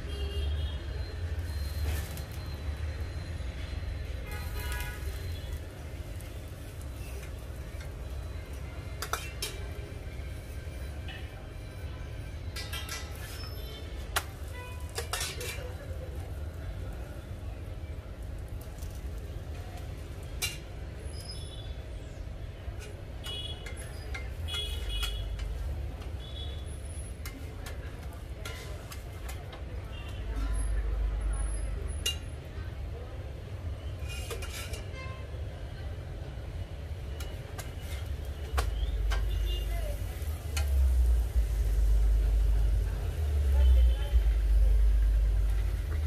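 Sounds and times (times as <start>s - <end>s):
metal utensils clinking on a pan: 4.4s - 10.5s, 12.4s - 16.5s, 18.6s - 20.9s, 22.7s - 26.2s, 27.0s - 29.6s, 31.9s - 32.4s, 34.0s - 35.0s, 37.1s - 42.8s
metal utensils clinking: 12.5s - 13.4s, 14.2s - 15.9s.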